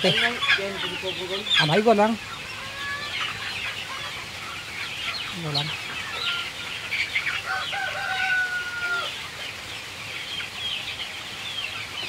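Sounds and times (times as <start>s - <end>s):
chickens calling: 0.0s - 12.0s
rooster crowing: 7.4s - 9.2s.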